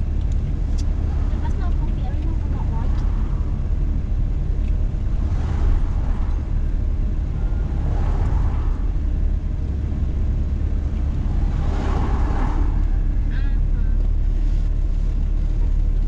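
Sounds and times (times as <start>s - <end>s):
car engine and tyres rumbling: 0.0s - 16.0s
passing vehicles whooshing: 0.0s - 16.0s.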